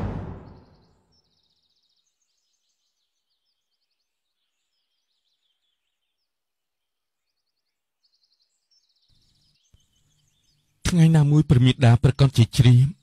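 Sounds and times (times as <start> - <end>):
high bird chirps: 0.3 - 4.0.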